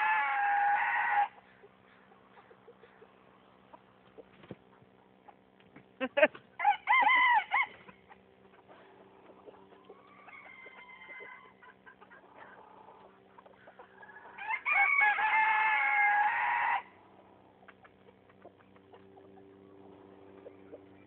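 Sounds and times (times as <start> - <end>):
rooster crowing: 0.0 - 1.4, 6.6 - 7.8, 9.9 - 11.6, 14.0 - 16.9
chickens clucking: 0.0 - 16.3, 16.9 - 21.0.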